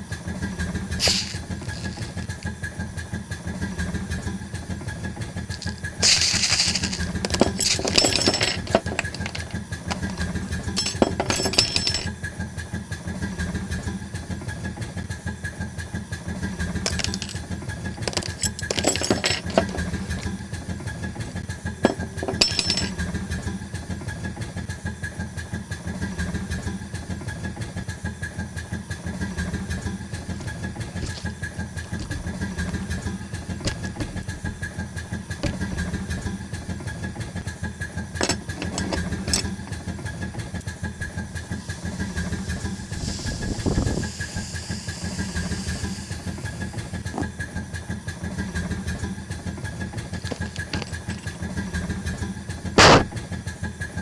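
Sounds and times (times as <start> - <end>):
engine chugging: 0.0 - 54.0
steam hissing: 41.6 - 46.9.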